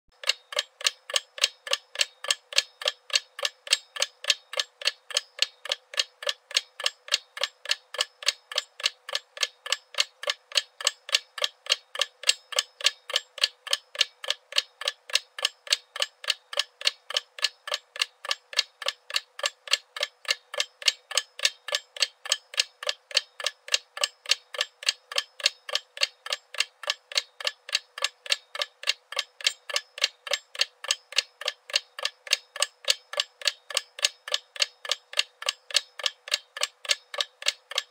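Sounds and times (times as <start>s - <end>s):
mantel clock ticking: 0.2s - 37.9s.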